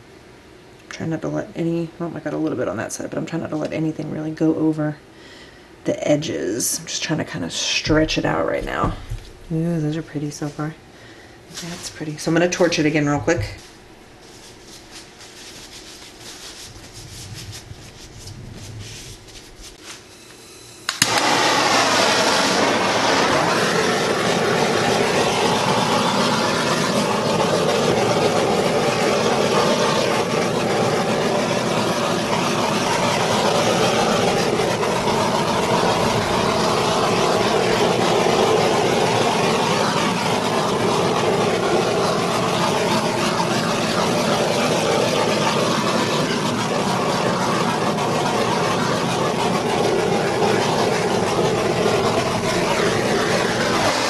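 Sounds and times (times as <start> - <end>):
torch flame hissing: 11.5 - 54.0
gas torch ignition click: 20.3 - 23.4.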